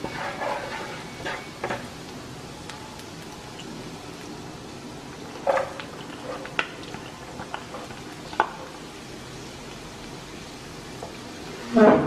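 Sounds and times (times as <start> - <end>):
garlic sizzling in oil: 0.0 - 12.0.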